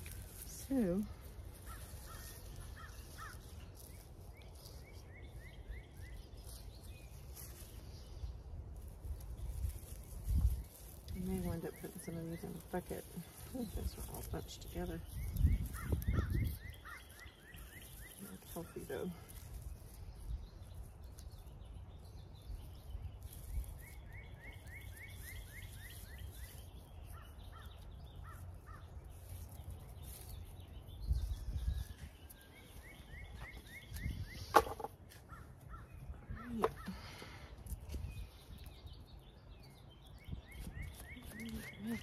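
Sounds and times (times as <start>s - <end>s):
bird trilling: 15.1s - 18.3s.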